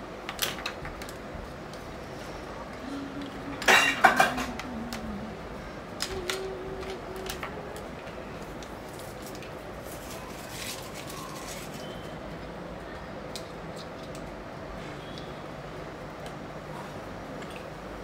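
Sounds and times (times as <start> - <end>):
dishes and utensils clacking: 3.6 - 4.6.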